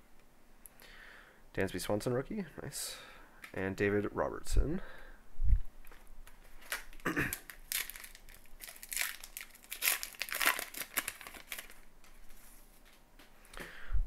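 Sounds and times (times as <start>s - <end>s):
foil wrapper tearing and crinkling: 6.6s - 11.9s.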